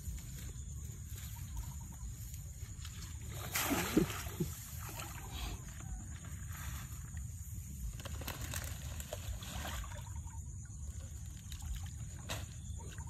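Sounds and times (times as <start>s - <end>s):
feet splashing in shallow water: 2.8s - 5.4s.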